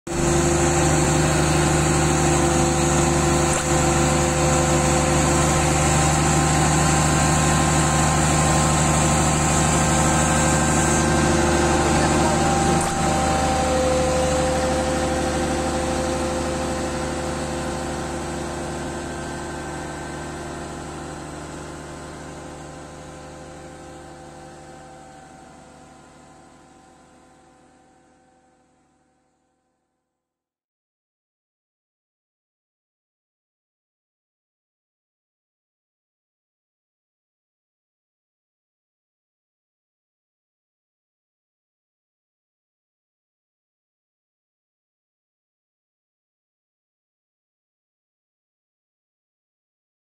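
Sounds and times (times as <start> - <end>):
diesel engine idling: 0.2 - 19.7.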